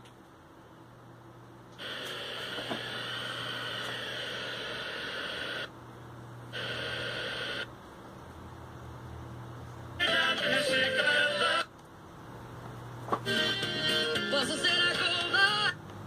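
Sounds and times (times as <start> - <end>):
steady low hum: 0.0 - 16.0
radio static hiss: 1.8 - 5.8, 6.5 - 7.8.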